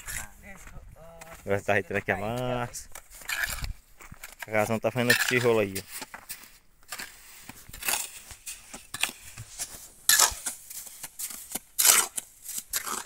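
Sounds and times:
trowel scraping mortar on concrete: 2.9s - 13.0s.

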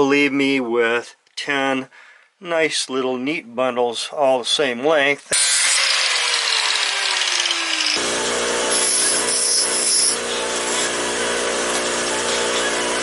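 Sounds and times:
bench grinder grinding metal rods: 5.3s - 13.0s
handheld grinder whine: 5.3s - 13.0s.

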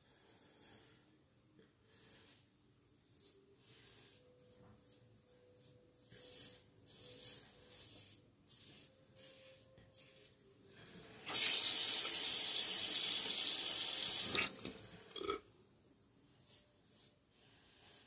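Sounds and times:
sink tap running: 11.3s - 14.5s.

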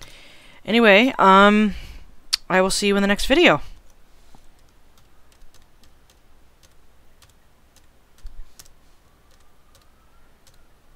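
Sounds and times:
keyboard keys clicking: 4.6s - 10.6s.

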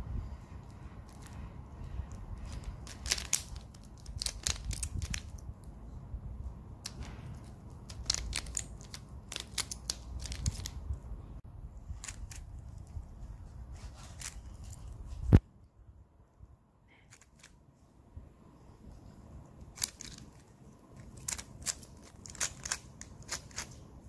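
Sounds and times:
puzzle cube layers clicking: 21.0s - 23.8s.

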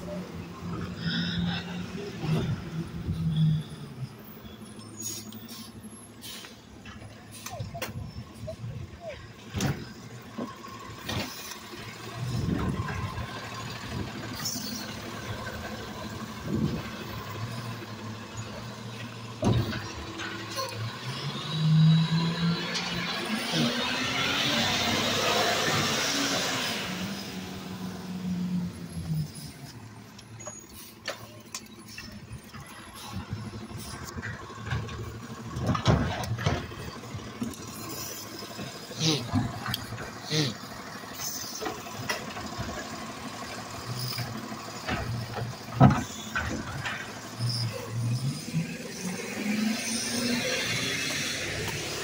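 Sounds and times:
diesel truck engine passing: 0.0s - 52.0s
hydraulic arm working: 4.7s - 52.0s
knocks and bang of cart: 19.3s - 20.4s, 34.4s - 37.3s, 44.8s - 47.3s.

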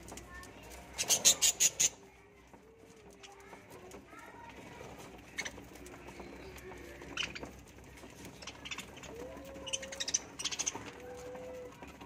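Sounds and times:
budgerigars chirping and chattering: 0.9s - 2.0s, 4.6s - 12.0s.

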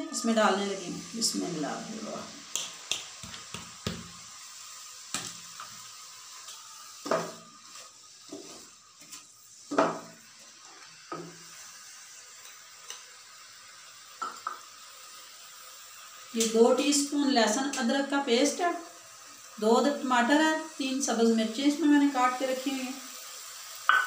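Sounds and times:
onions sizzling in hot oil: 0.0s - 24.0s
wooden spatula scraping a pan: 7.0s - 11.5s.

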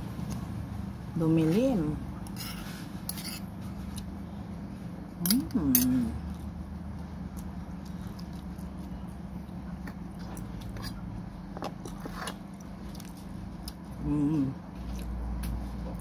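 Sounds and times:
steady low hum: 0.0s - 16.0s
person chewing food: 6.2s - 14.0s, 14.7s - 16.0s.

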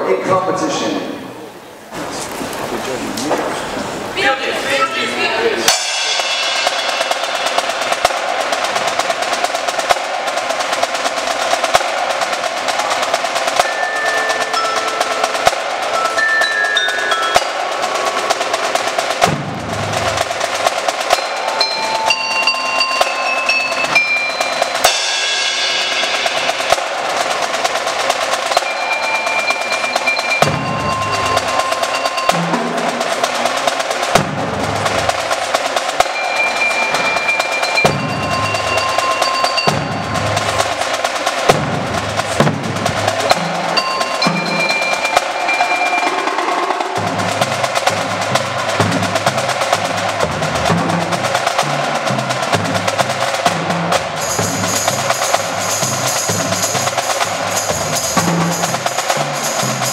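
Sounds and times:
snare and tenor drums: 5.6s - 59.9s
ringing mallet keyboard notes: 13.6s - 19.2s, 20.8s - 26.7s, 28.4s - 33.4s, 36.0s - 41.0s, 43.1s - 48.3s.

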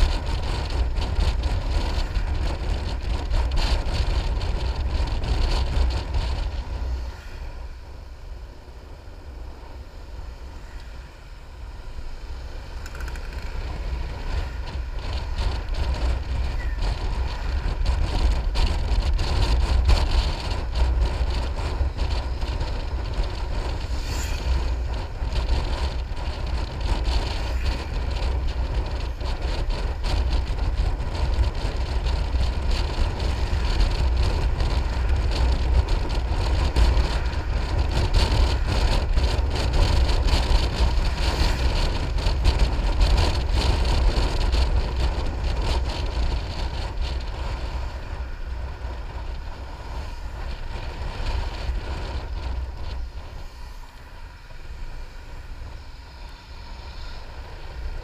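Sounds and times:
wind buffeting microphone: 0.0s - 58.0s
scooter engine running: 12.7s - 23.9s.

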